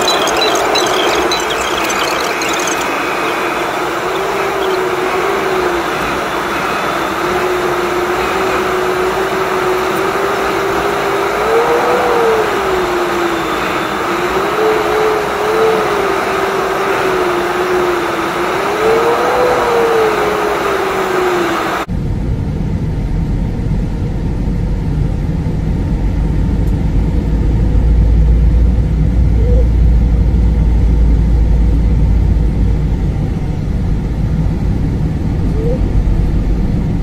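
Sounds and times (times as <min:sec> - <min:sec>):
jet engine and airflow rushing: 0:00.0 - 0:27.8.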